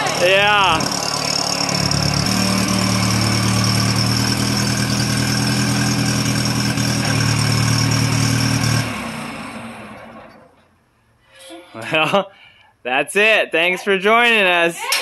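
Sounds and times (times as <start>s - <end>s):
tractor engine running: 0.0s - 10.6s.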